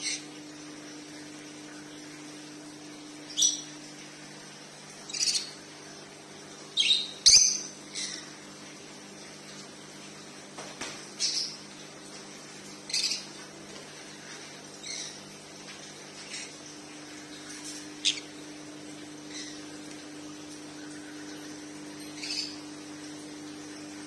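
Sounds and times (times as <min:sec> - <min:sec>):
parrots chirping: 0:12.9 - 0:13.3, 0:18.0 - 0:18.3.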